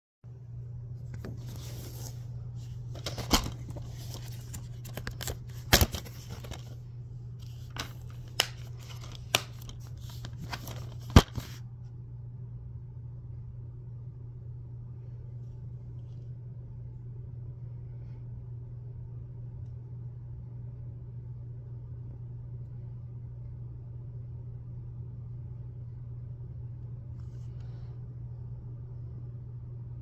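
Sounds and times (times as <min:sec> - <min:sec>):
steady low hum: 0:00.2 - 0:30.0
plastic case rustling and clicking: 0:02.9 - 0:06.8.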